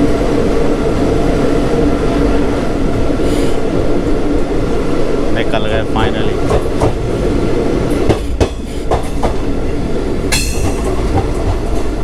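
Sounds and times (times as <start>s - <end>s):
train rumble: 0.0s - 12.0s
train wheels clacking over joints: 6.4s - 7.0s, 7.9s - 9.5s, 10.2s - 12.0s.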